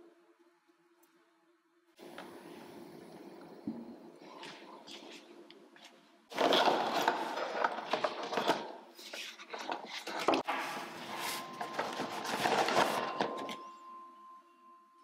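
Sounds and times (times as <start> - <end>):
packaging rustling: 6.3 - 10.5, 11.2 - 13.6.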